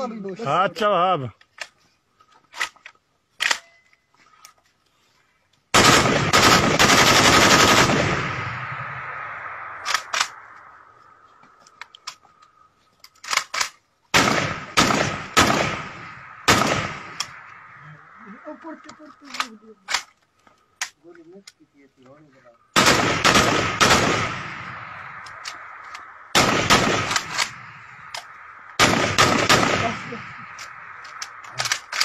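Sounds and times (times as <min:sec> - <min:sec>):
rifle single shots: 0:05.7 - 0:10.6, 0:13.3 - 0:17.7, 0:22.7 - 0:32.0
automatic gunfire burst: 0:05.8 - 0:08.4, 0:22.8 - 0:24.5, 0:26.3 - 0:27.4, 0:28.8 - 0:30.1.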